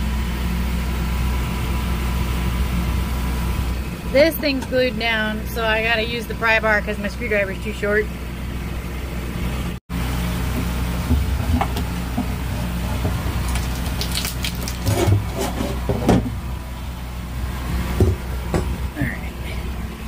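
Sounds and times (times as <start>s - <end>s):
low mechanical hum: 0.0s - 20.0s
pry bar scraping: 10.6s - 16.4s.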